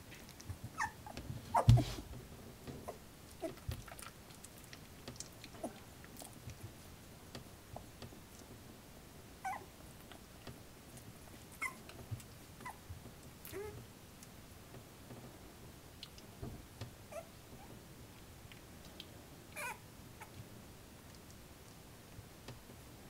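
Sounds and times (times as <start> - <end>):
soft rustling: 0.0 - 8.8
puppies squeaking and whimpering: 0.7 - 2.0, 9.4 - 9.7, 11.6 - 11.8, 17.1 - 17.7, 19.6 - 20.4.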